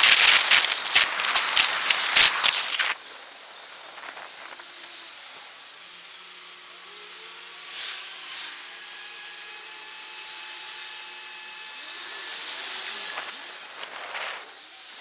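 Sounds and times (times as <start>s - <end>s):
rushing air and rolling noise: 0.0s - 4.6s
short wind gusts: 0.0s - 4.8s
faint steady whine: 0.0s - 15.0s.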